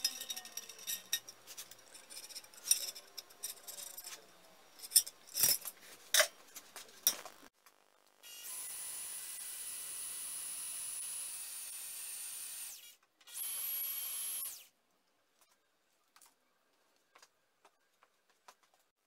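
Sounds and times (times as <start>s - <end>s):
cordless drill boring metal: 8.3s - 14.7s.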